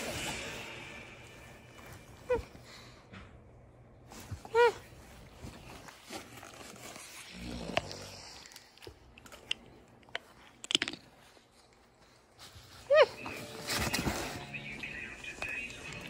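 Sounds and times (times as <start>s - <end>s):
dog whining: 2.2s - 2.7s, 4.2s - 5.1s, 12.8s - 13.5s.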